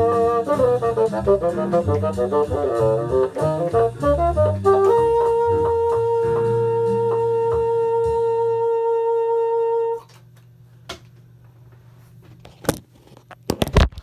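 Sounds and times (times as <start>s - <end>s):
bassoon note: 0.0s - 10.1s.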